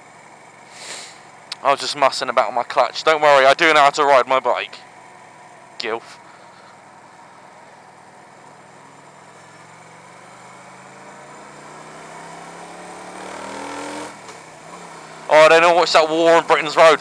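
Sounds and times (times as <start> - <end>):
wind and road noise: 4.8 - 17.0
motorcycle engine accelerating: 6.3 - 17.0.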